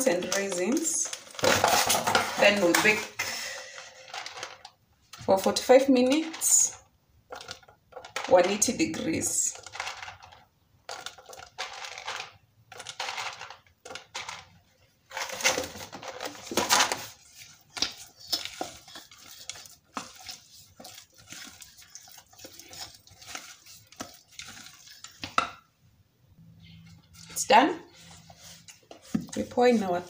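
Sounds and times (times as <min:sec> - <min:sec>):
spatula scraping a metal bowl: 0:17.2 - 0:25.1.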